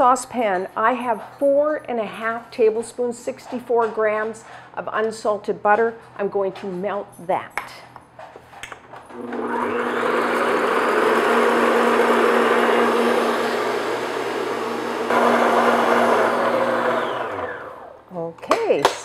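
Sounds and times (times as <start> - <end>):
stand mixer motor whirring: 9.1 - 18.0.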